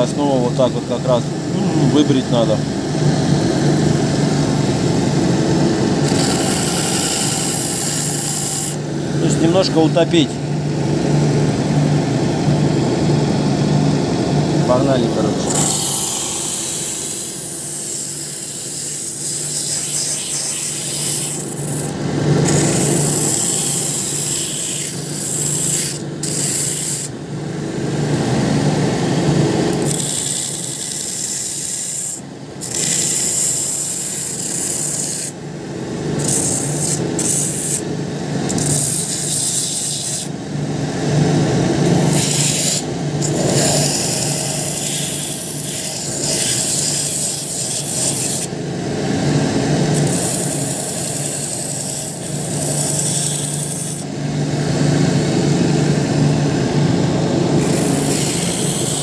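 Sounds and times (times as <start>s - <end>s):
sanding wheel grinding rubber sole: 6.0s - 8.8s, 15.5s - 27.1s, 36.2s - 37.8s, 41.8s - 48.5s, 50.0s - 54.0s, 57.5s - 59.0s.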